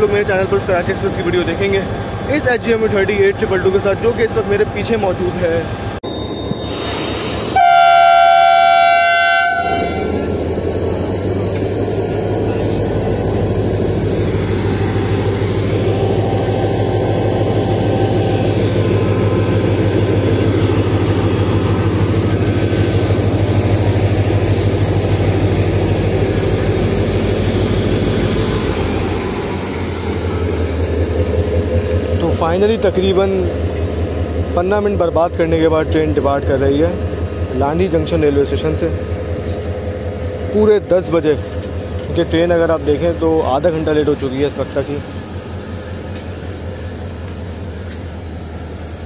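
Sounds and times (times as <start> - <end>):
locomotive engine whining: 0.0 - 49.0
locomotive horn blast: 7.5 - 10.3.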